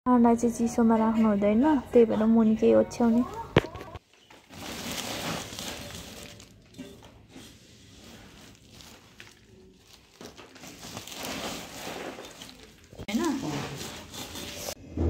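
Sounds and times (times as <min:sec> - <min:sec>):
cloth and sacking rustling: 0:03.2 - 0:14.8.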